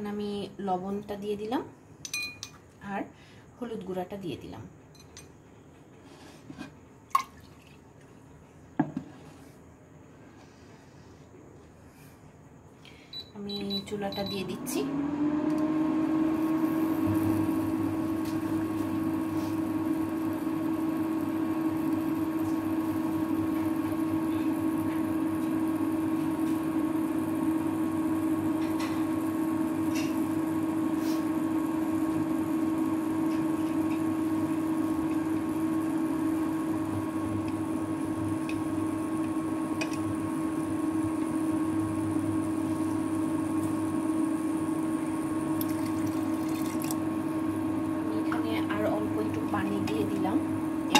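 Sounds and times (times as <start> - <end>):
cooker fan and electrical hum: 0.0 - 50.9.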